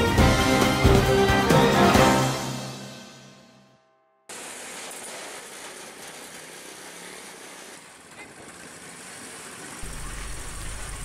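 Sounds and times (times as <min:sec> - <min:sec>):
steady hiss: 0:04.3 - 0:11.0.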